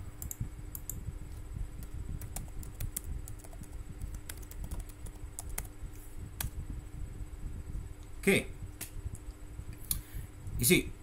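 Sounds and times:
faint steady hum: 0.0 - 11.0
keyboard typing clicks: 0.2 - 1.0, 1.8 - 5.7.

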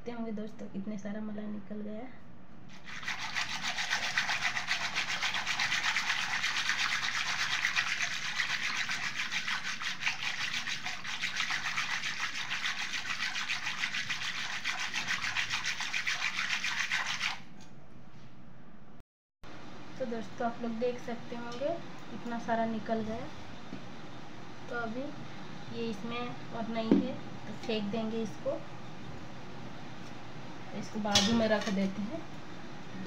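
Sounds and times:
whisk swishing through cream: 2.7 - 17.5.

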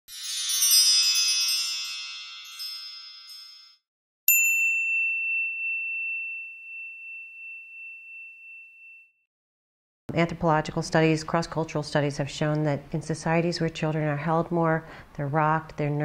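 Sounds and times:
chiming jingle: 0.1 - 9.2
high bell-like ding: 0.1 - 9.2.

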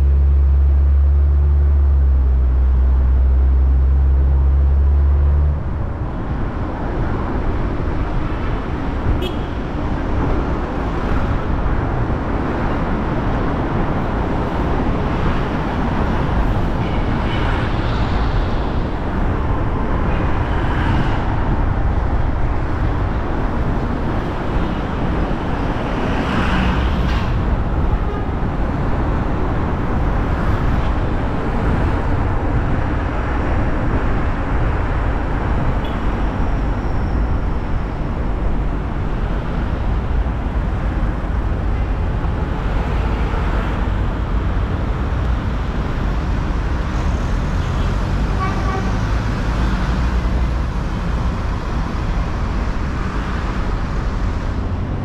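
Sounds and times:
car engine and road noise: 0.0 - 55.0
passing vehicles: 0.0 - 55.0
car horn toot: 9.2 - 9.6.

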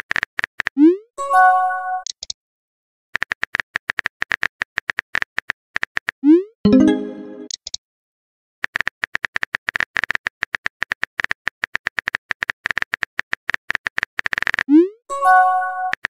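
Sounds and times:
short message chime: 6.7 - 7.5.

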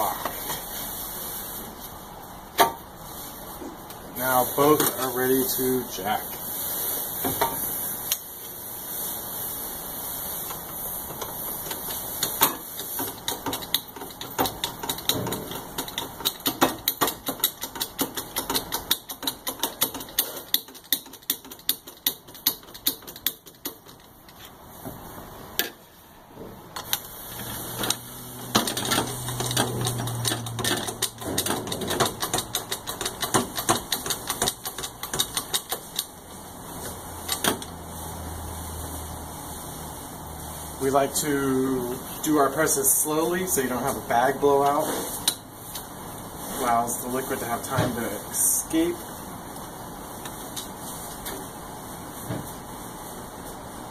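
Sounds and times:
hydraulic jack pump clicking: 13.0 - 24.1, 27.8 - 36.1.

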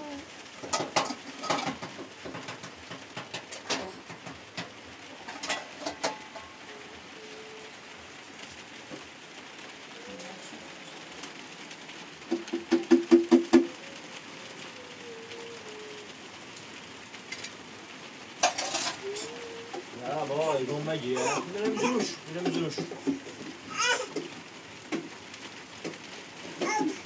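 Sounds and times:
soft cooing: 0.0 - 1.7, 3.5 - 4.2, 5.0 - 9.0, 9.6 - 11.3, 13.5 - 16.7, 18.4 - 24.4, 26.4 - 27.0.

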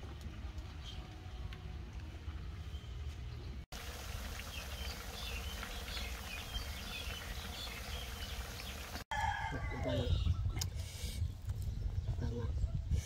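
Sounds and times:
fish deep-frying in oil: 3.7 - 9.0.

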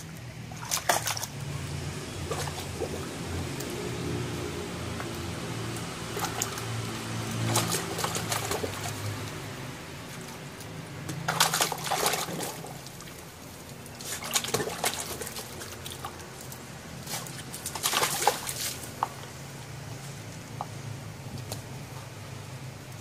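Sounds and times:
low steady hum: 0.0 - 23.0
puppy splashing water in a tub: 0.0 - 23.0.

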